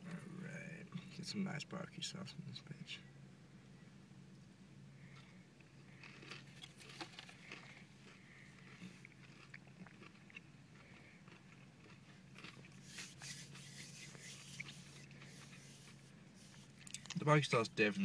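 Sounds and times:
chewing crispy chicken: 0:05.1 - 0:17.2.

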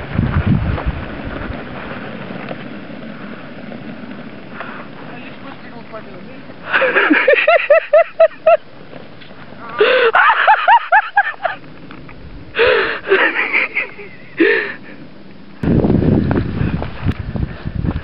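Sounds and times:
wind rumble on microphone: 0:00.0 - 0:18.0
breathless high-pitched laughing: 0:06.6 - 0:08.6, 0:12.6 - 0:14.9.

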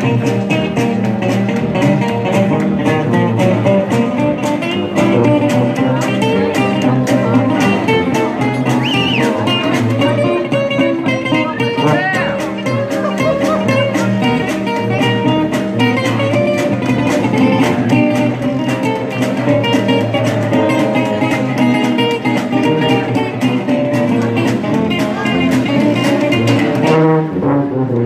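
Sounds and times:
sousaphone bass line: 0:00.0 - 0:27.4
jazz band playing: 0:00.0 - 0:28.0
strummed guitar and banjo chords: 0:00.0 - 0:28.0.

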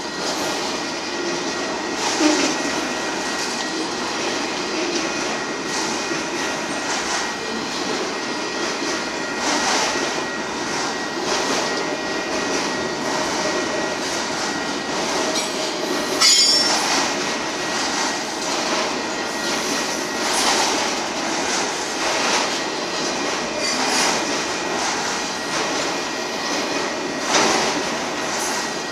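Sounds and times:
freight train rolling past: 0:00.0 - 0:28.9
sharp wheel squeal: 0:23.6 - 0:24.1.

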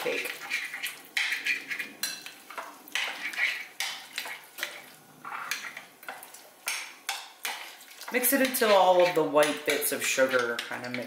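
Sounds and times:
wet scraping: 0:00.0 - 0:02.0, 0:02.9 - 0:05.8.

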